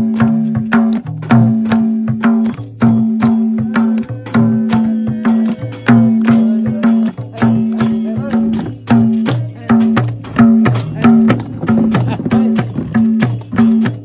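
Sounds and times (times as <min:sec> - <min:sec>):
barrel drum played by hand: 0:00.0 - 0:14.0
tambourine jingling: 0:00.0 - 0:14.0.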